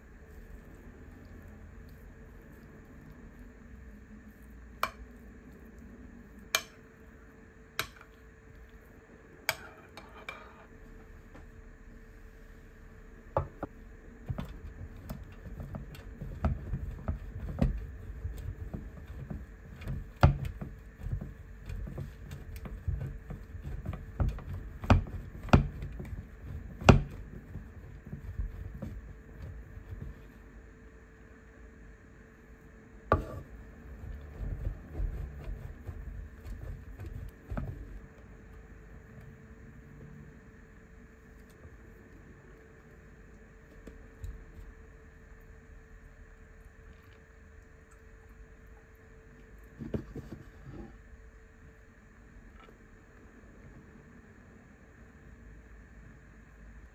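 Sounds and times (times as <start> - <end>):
grater knocking on wooden board: 14.3 - 30.2, 33.1 - 38.0
cheese grating on box grater: 33.2 - 38.0.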